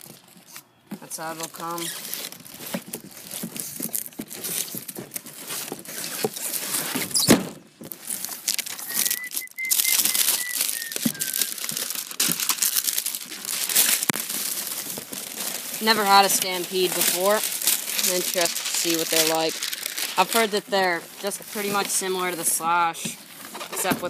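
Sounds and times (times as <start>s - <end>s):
plastic packaging crinkling: 1.2s - 7.2s, 7.8s - 24.0s
cardboard box moved about: 1.5s - 24.0s
thump: 7.0s - 7.6s
faint high whistling tone: 8.7s - 11.6s.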